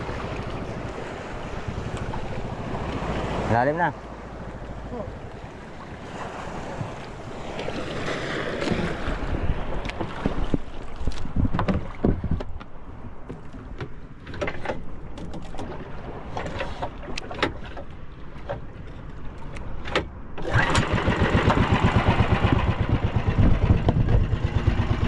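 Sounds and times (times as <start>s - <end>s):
wind buffeting microphone: 0.0s - 3.6s, 4.3s - 13.9s, 20.5s - 25.0s
water slapping against boat hull: 0.0s - 25.0s.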